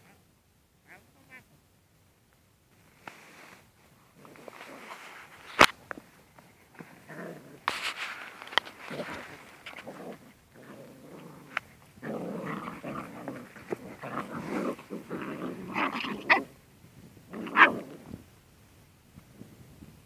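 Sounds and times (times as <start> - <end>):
puppies growling in play: 4.1 - 5.3, 6.6 - 16.6, 17.2 - 18.2.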